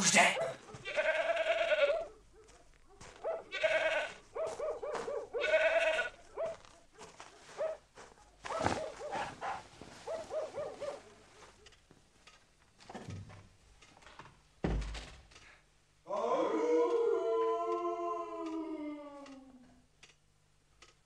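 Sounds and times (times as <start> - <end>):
animal bleating: 0.8 - 2.1, 3.5 - 4.2, 5.4 - 6.2.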